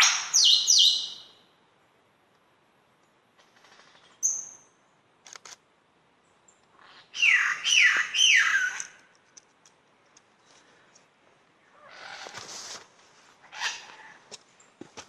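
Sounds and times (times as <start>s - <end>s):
loud downward sweeping bird calls: 0.0s - 1.4s, 7.0s - 9.0s
lyrebird singing: 0.0s - 1.4s, 6.9s - 9.0s.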